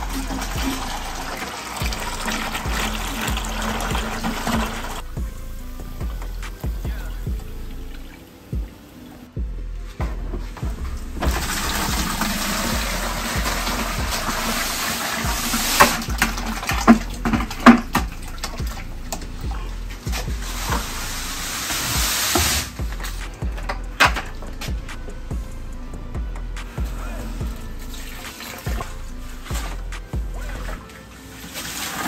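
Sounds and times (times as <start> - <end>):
water pouring into plastic bucket: 0.0 - 5.0, 11.2 - 19.4, 31.4 - 32.0.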